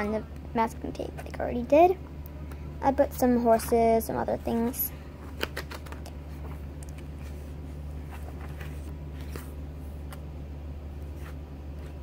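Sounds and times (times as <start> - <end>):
steady low hum: 0.0 - 12.0
paper pages rustling: 4.6 - 10.2, 11.0 - 12.0.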